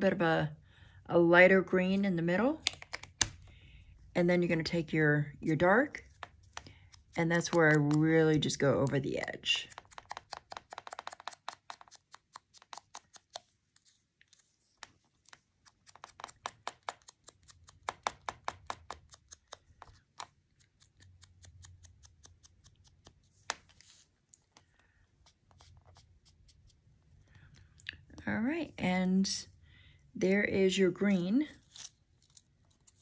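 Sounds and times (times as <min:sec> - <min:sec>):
foam dauber tapping on paper: 0:09.6 - 0:13.4, 0:15.7 - 0:21.0.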